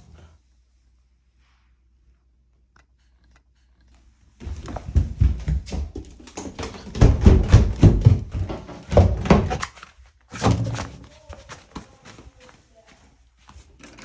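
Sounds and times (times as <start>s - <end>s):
footsteps going down stairs: 3.6s - 14.0s.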